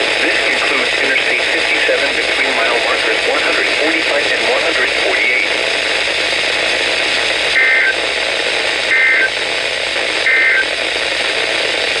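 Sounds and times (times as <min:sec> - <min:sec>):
radio static hiss: 0:00.0 - 0:12.0
warbling data bursts: 0:07.6 - 0:08.0, 0:08.9 - 0:09.4, 0:10.2 - 0:10.8.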